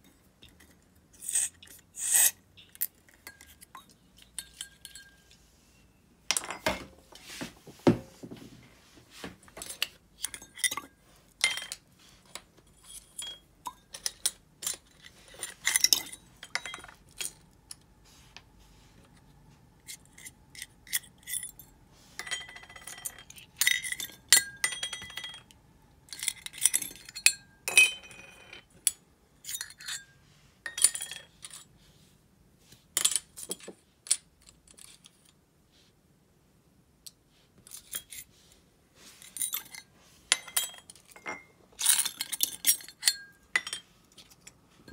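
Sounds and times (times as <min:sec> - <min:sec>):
small metal parts clinking: 0:09.6 - 0:17.8, 0:19.8 - 0:30.1, 0:39.2 - 0:44.9.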